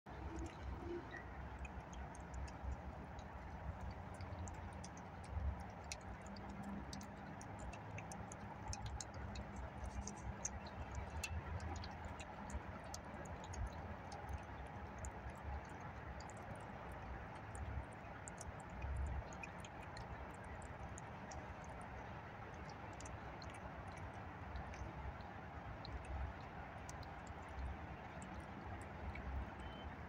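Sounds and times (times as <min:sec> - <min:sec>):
cat chewing and licking: 0:00.2 - 0:29.8.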